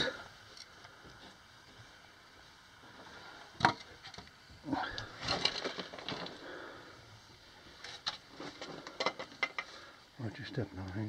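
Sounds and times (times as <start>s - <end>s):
scraping and crunching over rubble: 4.9s - 6.4s.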